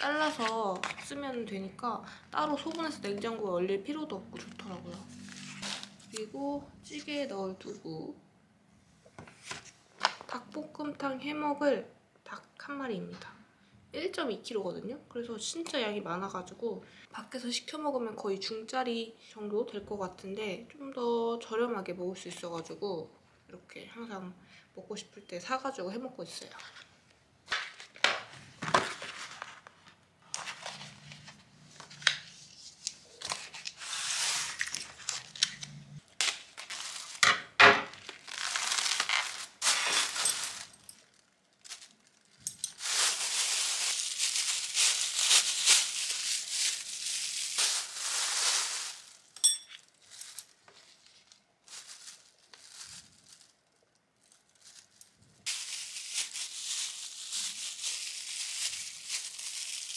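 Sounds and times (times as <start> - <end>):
plastic bag crinkling: 36.3 - 37.3, 37.9 - 59.9.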